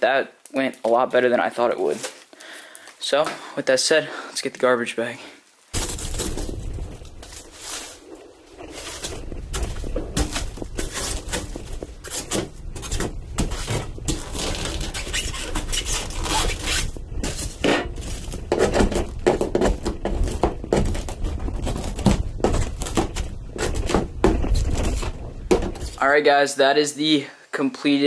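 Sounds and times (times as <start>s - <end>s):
debris and plastic scraping: 5.8s - 26.0s
sharp knocks: 21.9s - 26.0s.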